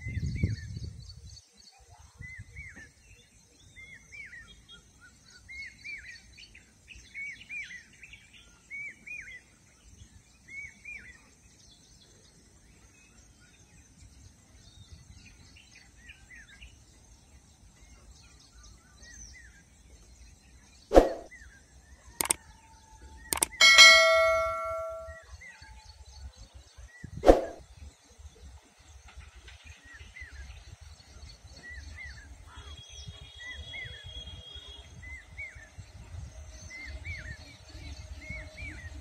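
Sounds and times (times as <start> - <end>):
bird chirping: 23.3 - 25.2.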